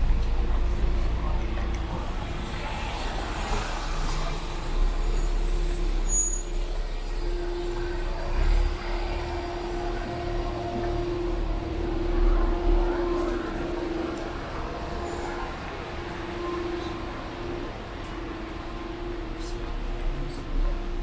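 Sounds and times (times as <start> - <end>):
low rumble: 0.0 - 21.0
motor vehicle running: 0.0 - 21.0
steady hum: 6.8 - 21.0.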